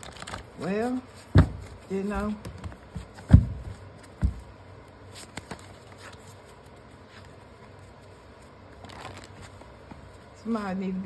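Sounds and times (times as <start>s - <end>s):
dull thumps of card deck: 1.2s - 4.5s.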